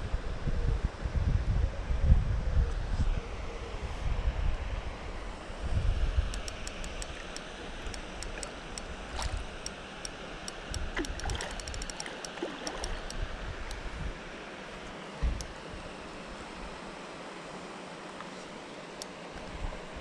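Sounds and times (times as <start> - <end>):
water splashing and lapping: 6.3 - 13.2
fishing reel drag clicking: 6.3 - 13.8.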